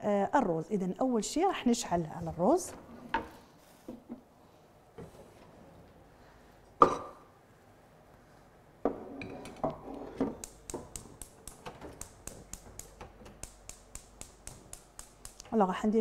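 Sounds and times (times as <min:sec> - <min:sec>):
gas igniter clicking rapidly: 0:10.4 - 0:15.5.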